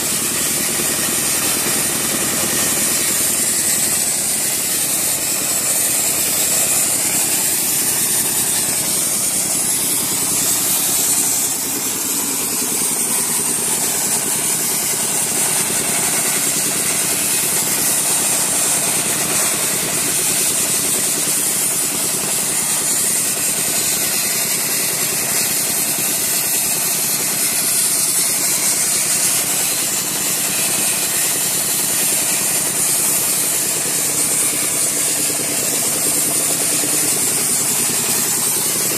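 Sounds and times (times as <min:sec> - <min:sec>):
air compressor running: 0:00.0 - 0:38.9
sandblasting nozzle hissing: 0:00.0 - 0:38.9
diesel engine running: 0:28.1 - 0:38.9.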